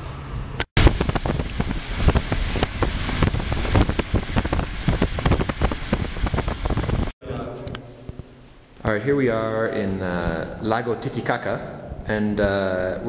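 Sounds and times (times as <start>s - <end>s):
wind buffeting microphone: 0.8s - 7.2s.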